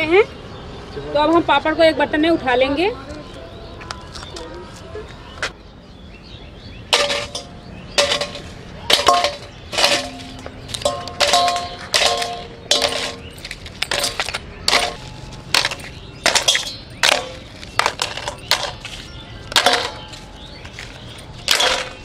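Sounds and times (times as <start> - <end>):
papads clattering into metal bowl: 6.9 - 20.2.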